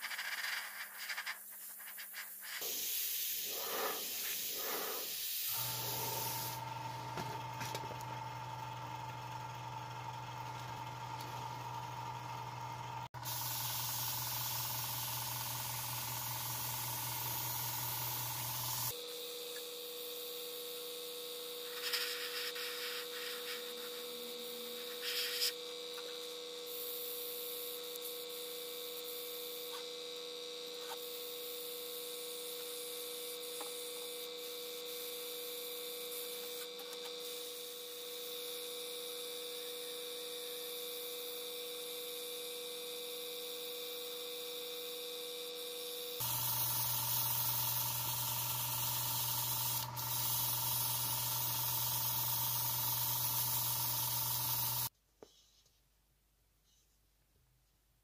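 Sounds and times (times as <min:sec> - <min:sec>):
airbrush spraying hiss: 0:00.0 - 0:06.6, 0:13.2 - 0:19.0, 0:21.6 - 0:29.8, 0:30.8 - 0:38.5, 0:46.2 - 0:54.9
short bursts of spray: 0:00.0 - 0:06.6, 0:13.2 - 0:19.0, 0:21.6 - 0:25.6, 0:46.2 - 0:54.9.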